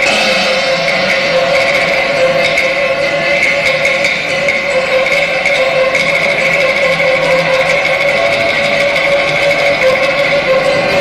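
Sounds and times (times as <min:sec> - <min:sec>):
light percussion strokes: 0:00.0 - 0:11.0
opera orchestra long melodic tones: 0:00.0 - 0:11.0.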